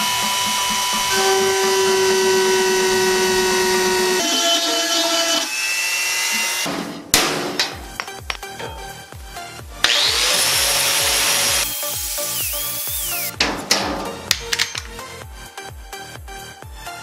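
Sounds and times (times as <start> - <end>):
rotary tool grinding metal: 0.0 - 6.7, 9.8 - 13.4
sharp metal knocks: 6.7 - 9.1.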